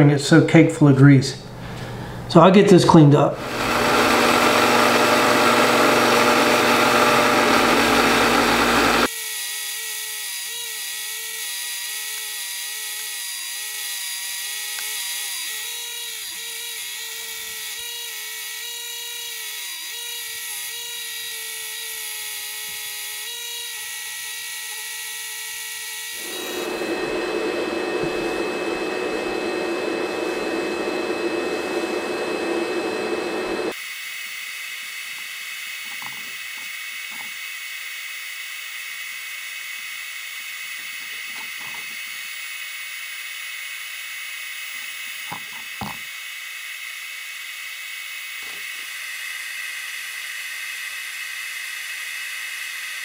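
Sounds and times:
bench grinder scrubbing metal: 3.4 - 9.1, 26.0 - 33.7
power tool whine: 3.4 - 53.0.

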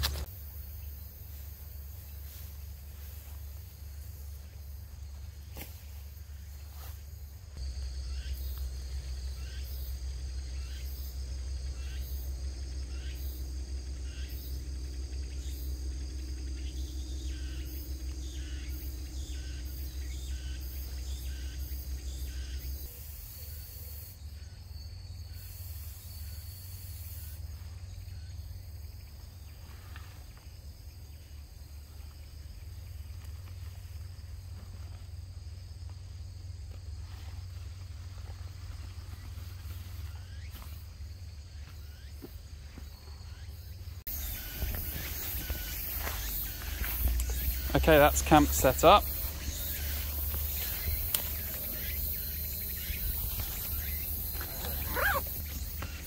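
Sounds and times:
insects buzzing: 0.0 - 56.0
rapidly pulsing insect call: 0.0 - 56.0.

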